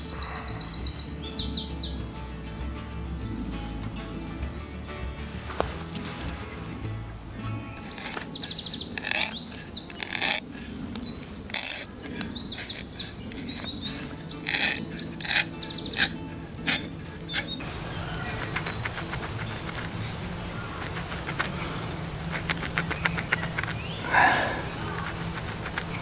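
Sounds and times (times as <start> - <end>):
small birds chirping: 0.0 - 26.0
hand auger boring wood: 7.8 - 26.0
pencil scratching: 7.9 - 10.7, 11.5 - 17.6, 18.2 - 26.0.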